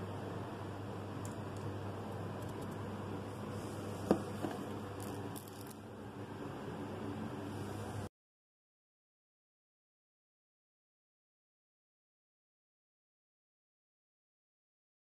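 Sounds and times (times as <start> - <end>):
low room hum: 0.0 - 8.1.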